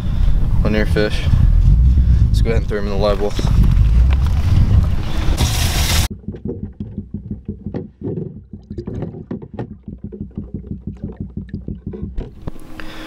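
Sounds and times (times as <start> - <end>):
wind buffeting microphone: 0.0 - 12.5
muffled underwater sloshing: 1.2 - 13.0
fish knocking in water: 6.1 - 12.6.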